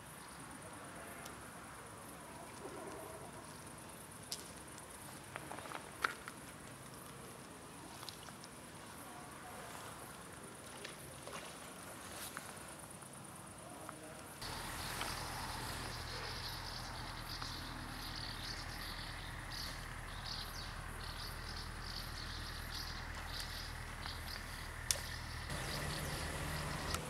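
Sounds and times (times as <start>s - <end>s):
insects chirping: 0.0s - 27.0s
low electrical hum: 14.4s - 27.0s.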